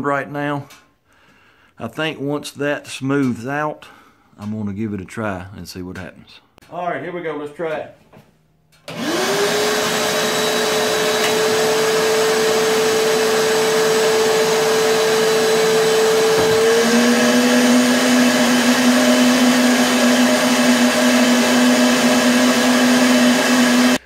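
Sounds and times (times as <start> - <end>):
vacuum motor whine: 8.9 - 24.0.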